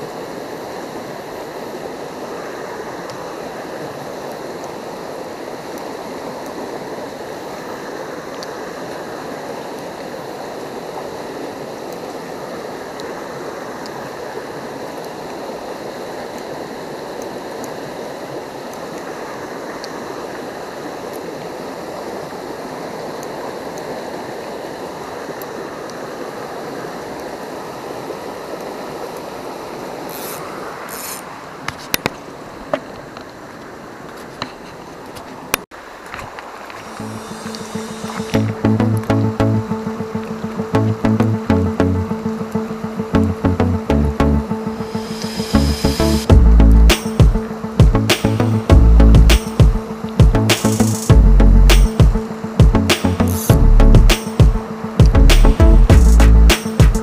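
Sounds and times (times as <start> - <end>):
river rushing over rocks: 0.0 - 34.2, 34.8 - 38.5.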